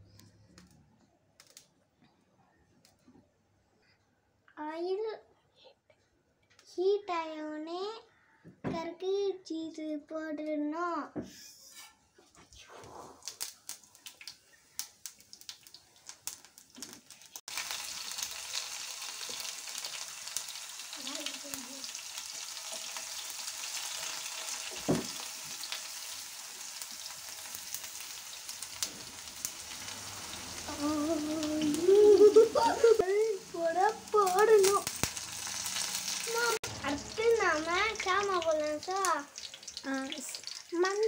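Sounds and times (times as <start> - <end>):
frying sizzle: 13.1 - 41.0
seeds popping in hot oil: 13.2 - 41.0.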